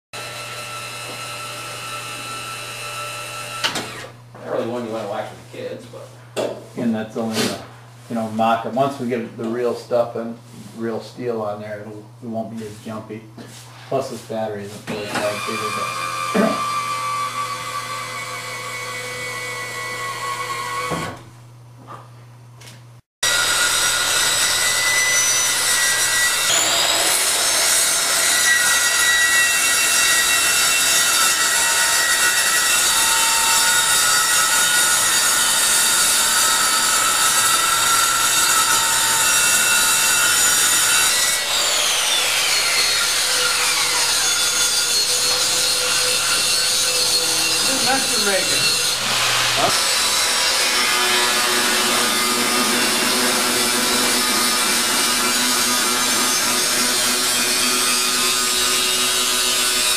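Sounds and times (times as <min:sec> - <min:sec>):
circular saw cutting plastic: 0:14.9 - 0:21.0, 0:23.2 - 0:59.9
saw blade spinning down: 0:41.4 - 0:59.8.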